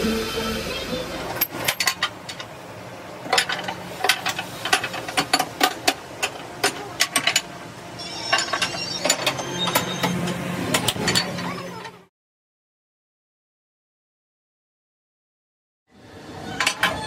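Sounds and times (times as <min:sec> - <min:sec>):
metallic clanks and clicks: 0:01.4 - 0:02.5, 0:03.2 - 0:07.5.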